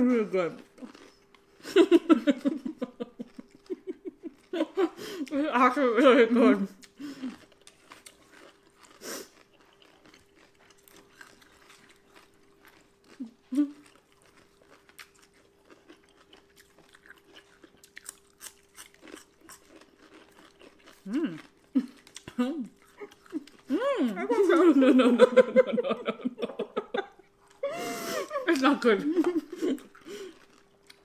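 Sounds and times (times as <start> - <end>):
faint steady hum: 0.0 - 31.0
chewing with soft crunches: 0.6 - 1.7, 6.8 - 23.8, 27.1 - 27.6, 29.2 - 31.0
person humming: 21.1 - 21.4.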